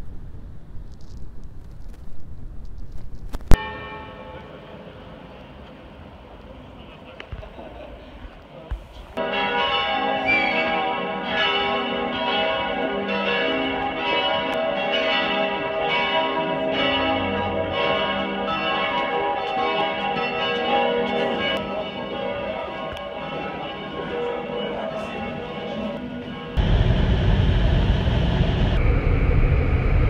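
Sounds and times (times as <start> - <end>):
church bells pealing: 3.6 - 6.8, 9.2 - 27.6.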